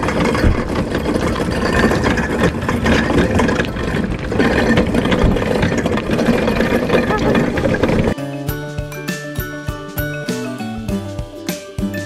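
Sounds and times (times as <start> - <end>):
trolley frame rattling: 0.0 - 8.2
trolley wheels rumbling on asphalt: 0.0 - 8.2.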